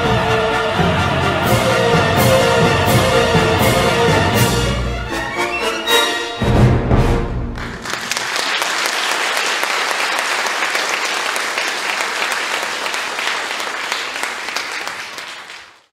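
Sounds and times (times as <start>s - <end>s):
orchestral chord: 0.0s - 7.5s
audience applauding: 7.6s - 15.9s.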